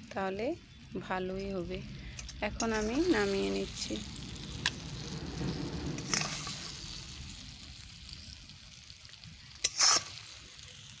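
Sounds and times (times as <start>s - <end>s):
chutney sizzling in a pan: 0.0s - 11.0s
scraping a pan: 9.6s - 10.2s.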